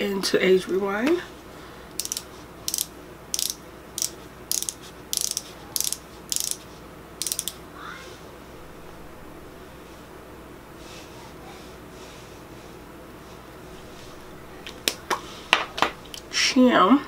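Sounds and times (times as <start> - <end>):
twist barrel ratchet clicking: 2.0 - 6.6, 7.2 - 7.6.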